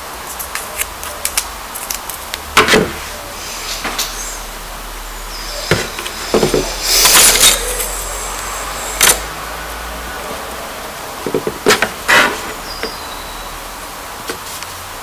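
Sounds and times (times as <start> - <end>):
wooden sticks scraping: 5.3 - 9.3, 11.2 - 13.1
wood clicks and knocks: 11.2 - 12.0.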